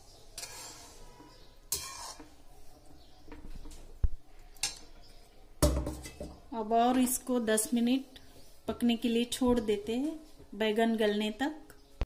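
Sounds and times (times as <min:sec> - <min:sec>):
metal spatula stirring gravy: 0:00.0 - 0:03.3.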